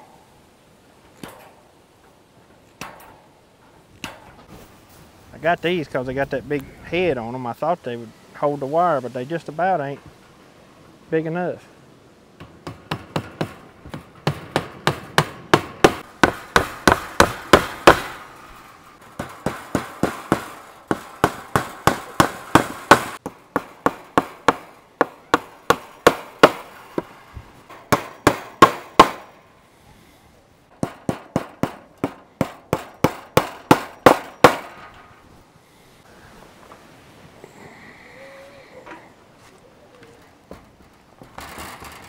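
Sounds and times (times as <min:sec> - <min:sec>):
hammer driving nails into wood: 0:12.4 - 0:18.2, 0:19.1 - 0:27.1, 0:27.8 - 0:29.3, 0:30.8 - 0:34.8.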